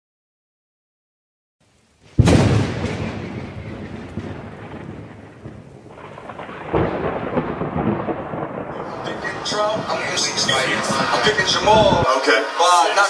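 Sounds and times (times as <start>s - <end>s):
rain hissing: 1.6s - 13.0s
thunder rumbling: 2.0s - 12.1s.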